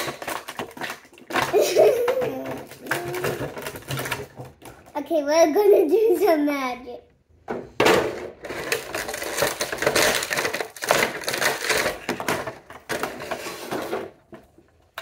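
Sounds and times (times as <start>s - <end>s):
plastic packaging crackling: 0.0s - 5.0s, 8.3s - 15.0s.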